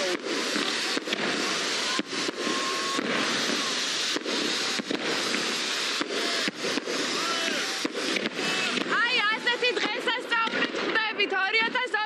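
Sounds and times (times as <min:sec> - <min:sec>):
fireworks crackling and bursting: 0:00.0 - 0:12.0.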